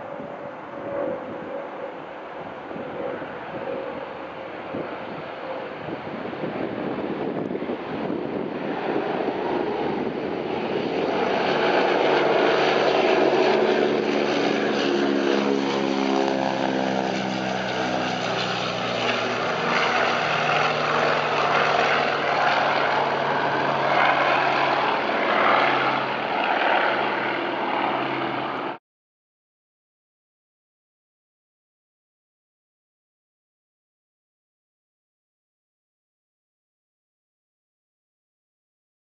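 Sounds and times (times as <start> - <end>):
propeller plane droning past: 0.0 - 28.8.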